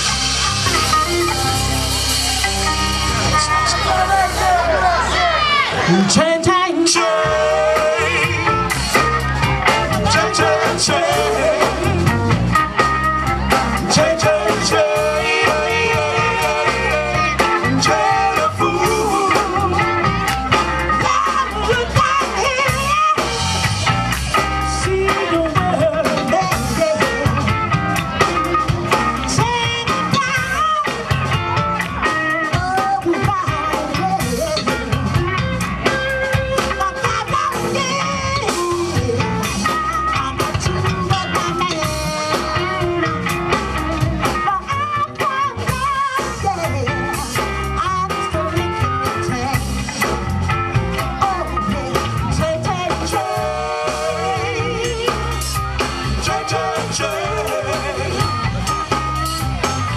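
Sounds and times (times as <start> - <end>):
drums: 0.0 - 59.9
electric guitar: 0.0 - 59.9
woman singing into microphone: 5.8 - 8.6, 21.0 - 23.3, 24.8 - 27.4, 36.6 - 39.4, 44.4 - 46.9, 51.2 - 55.4.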